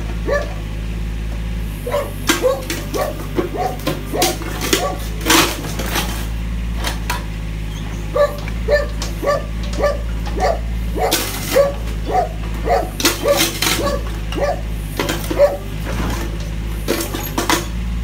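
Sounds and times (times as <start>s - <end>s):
diesel engine running: 0.0s - 18.0s
dog barking: 0.2s - 0.6s, 1.8s - 5.4s, 8.1s - 15.8s
ceramic crunching and scraping: 1.9s - 7.1s, 8.0s - 17.8s.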